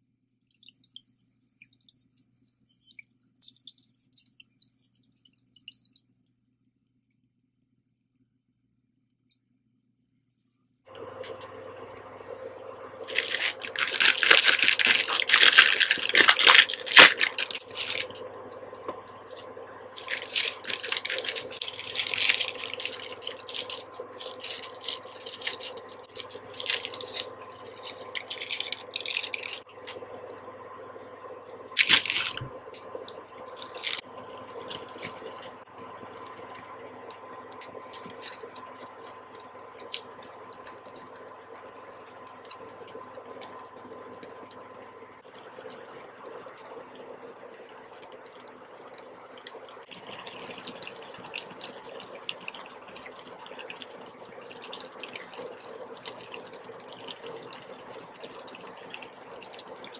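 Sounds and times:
faint steady hum: 0:08.0 - 0:59.9
plastic packets crinkling and tearing: 0:13.0 - 0:18.1, 0:20.0 - 0:29.6, 0:31.8 - 0:32.5, 0:33.6 - 0:34.0
seasoning sachets shaken: 0:13.0 - 0:18.1, 0:19.3 - 0:29.6, 0:31.7 - 0:32.5, 0:33.5 - 0:34.0
water splashing and dripping: 0:13.0 - 0:59.9
sharp crackle: 0:13.1 - 0:18.1.

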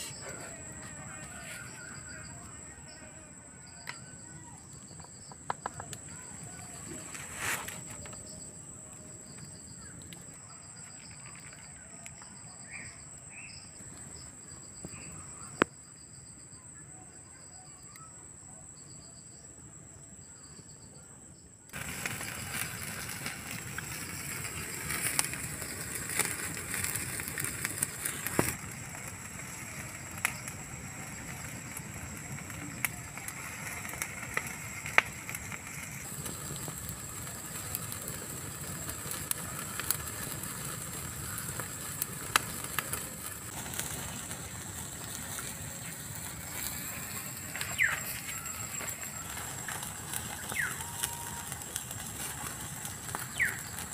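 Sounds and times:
wood fire crackling: 0:00.0 - 0:15.7, 0:21.7 - 0:53.9
high chirps: 0:46.4 - 0:51.3.

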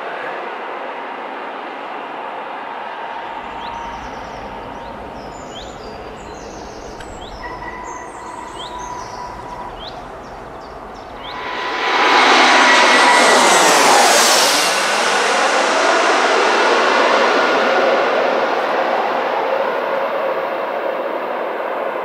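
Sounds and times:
jet airliner roar: 0:02.9 - 0:22.0
thin held whine: 0:03.3 - 0:15.5
distant rumble: 0:03.3 - 0:18.7.

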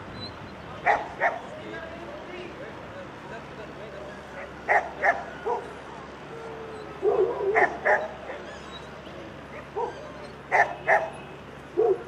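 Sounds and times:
dogs barking: 0:00.8 - 0:01.6, 0:04.2 - 0:12.0.

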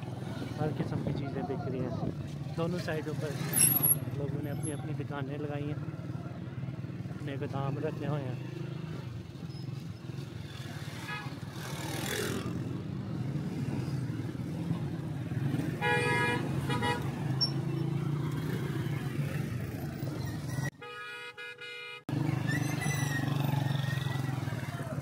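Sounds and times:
street traffic: 0:00.0 - 0:25.0
vehicle horn honking: 0:15.8 - 0:17.1, 0:20.8 - 0:22.1.

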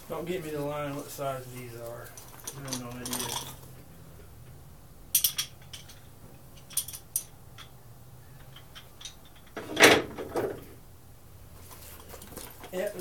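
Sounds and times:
metal hand tools clinking: 0:01.8 - 0:03.8, 0:05.1 - 0:07.8, 0:08.4 - 0:09.6.

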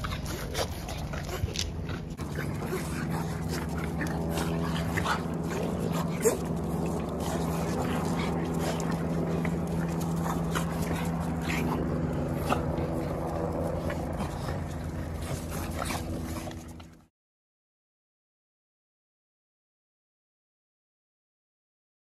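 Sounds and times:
steady low hum: 0:00.0 - 0:17.1.

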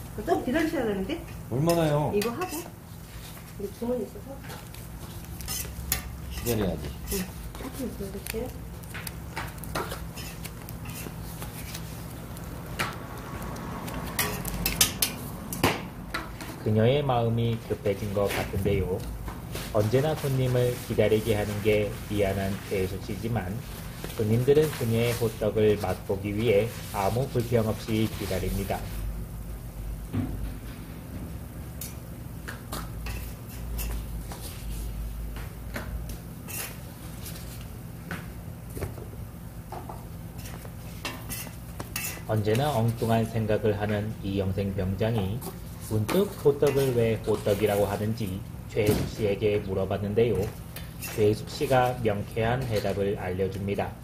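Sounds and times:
metal tongs scraping griddle: 0:05.4 - 0:07.3, 0:09.9 - 0:11.2, 0:14.1 - 0:15.2, 0:36.4 - 0:36.8, 0:40.4 - 0:43.0.

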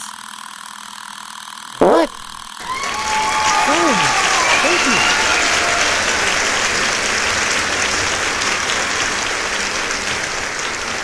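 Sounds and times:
audience applause: 0:02.6 - 0:11.0.

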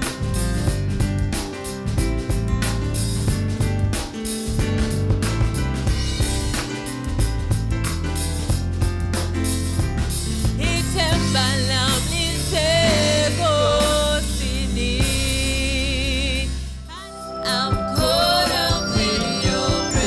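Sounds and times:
keyboard bass and drums: 0:00.0 - 0:16.8
woman singing: 0:10.6 - 0:20.0.

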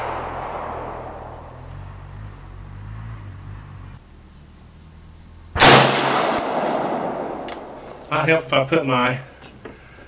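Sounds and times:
rifle shot: 0:00.0 - 0:01.9, 0:05.6 - 0:08.0
high-pitched insect drone: 0:00.0 - 0:05.6
low hum: 0:00.0 - 0:08.2.

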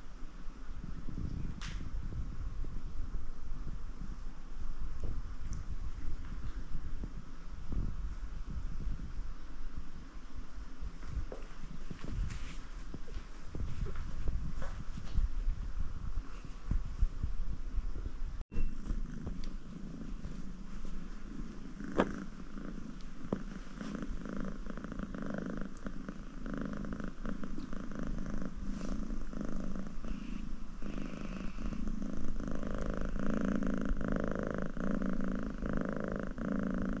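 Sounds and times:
cat purring: 0:18.6 - 0:37.0.

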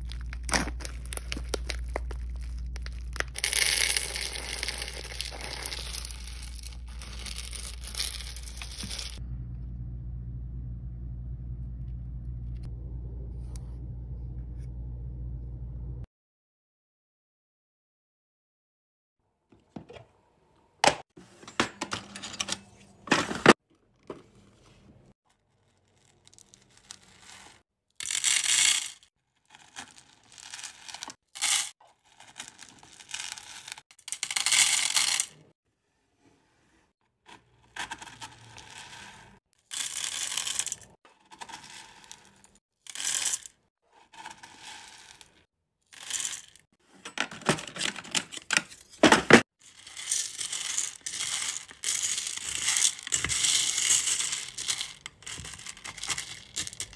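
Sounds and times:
wax beads rattling into metal pot: 0:00.0 - 0:09.2, 0:25.7 - 0:35.3, 0:39.7 - 0:43.6, 0:44.2 - 0:46.7, 0:49.6 - 0:56.9.

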